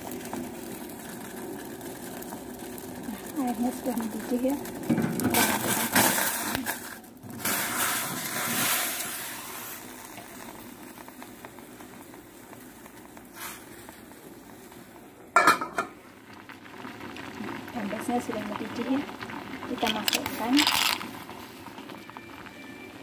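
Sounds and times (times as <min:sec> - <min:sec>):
water boiling in a pot: 0:00.0 - 0:23.0
metal lid clattering: 0:15.4 - 0:16.0.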